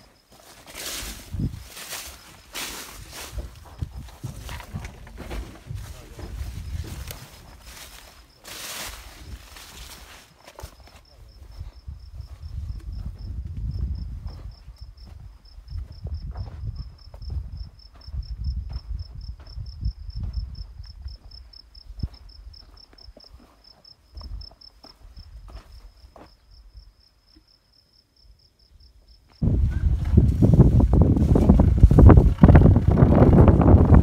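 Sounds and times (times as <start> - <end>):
wind gusting on microphone: 1.0 - 7.8, 11.2 - 21.2, 29.4 - 34.0
insect chirping: 6.3 - 29.4.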